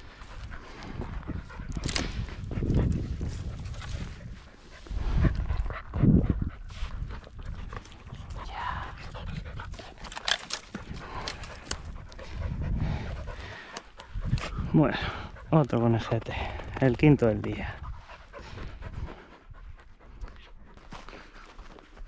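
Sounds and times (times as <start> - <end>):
dog panting: 0.0 - 22.0
rustling and crackling: 9.6 - 12.4.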